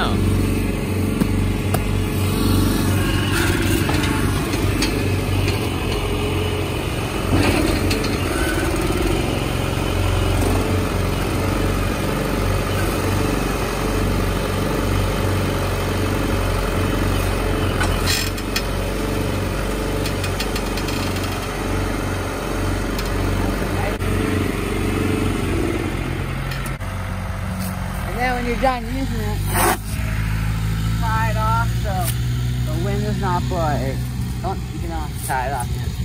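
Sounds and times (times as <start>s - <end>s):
tractor diesel engine running: 0.0s - 36.0s.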